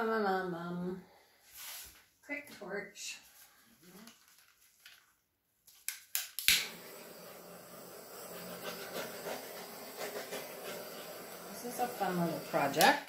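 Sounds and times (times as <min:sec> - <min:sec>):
torch igniter clicks: 0:05.8 - 0:06.9, 0:12.5 - 0:13.0
hissing torch flame: 0:06.4 - 0:13.0.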